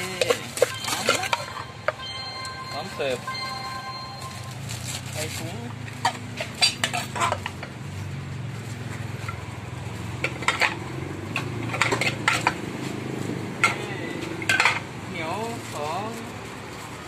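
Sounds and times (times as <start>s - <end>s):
metal spoon clinking against pot: 0.0s - 2.7s.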